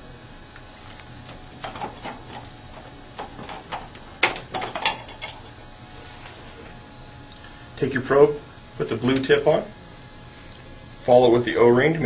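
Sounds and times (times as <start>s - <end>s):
electrode clicks and knocks: 0.5s - 5.6s, 10.2s - 12.0s.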